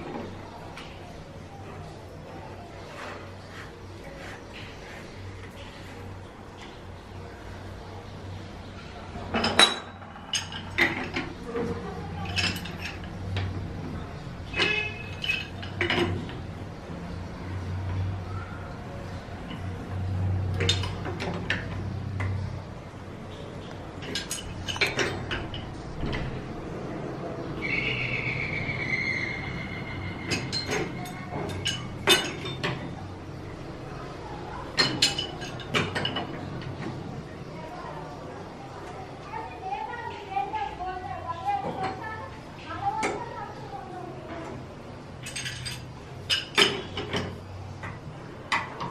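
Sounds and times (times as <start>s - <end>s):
metal clinks and knocks: 9.3s - 11.3s, 14.5s - 16.3s, 24.0s - 26.3s, 30.3s - 32.8s, 45.2s - 48.9s.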